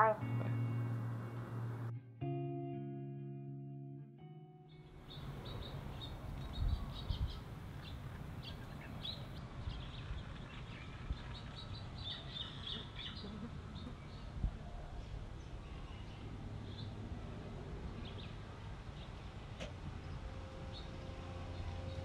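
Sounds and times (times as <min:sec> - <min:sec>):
small birds chirping: 0:05.0 - 0:14.4.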